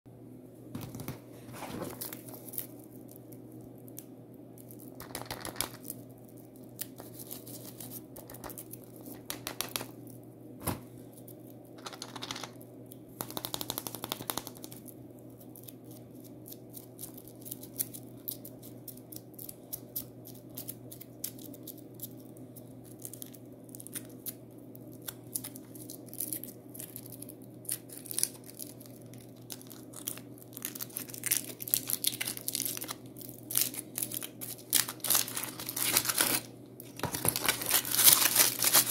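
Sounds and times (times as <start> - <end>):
foil crinkling and tearing: 25.0 - 38.9
foil wrapped eggs rustling: 25.2 - 38.9.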